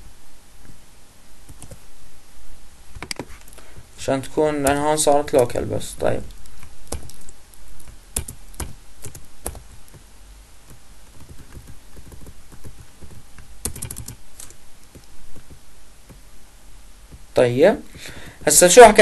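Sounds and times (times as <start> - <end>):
computer keyboard typing: 1.5 - 1.8, 4.6 - 5.0, 6.3 - 10.0, 10.6 - 15.6.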